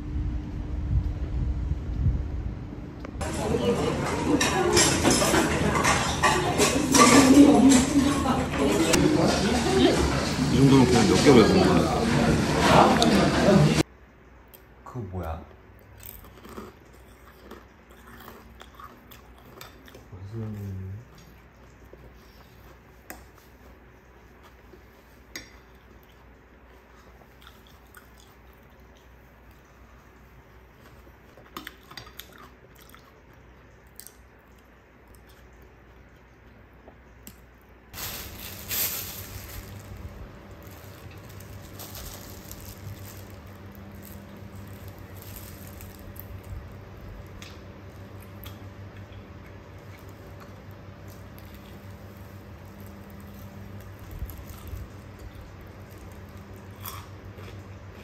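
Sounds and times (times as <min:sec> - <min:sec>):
steady low hum: 0:00.0 - 0:58.0
quiet chewing: 0:15.7 - 0:37.7, 0:40.3 - 0:58.0
fried chicken being eaten: 0:31.3 - 0:35.8, 0:40.6 - 0:58.0
rustling and crunching: 0:37.9 - 0:48.3, 0:49.5 - 0:57.6.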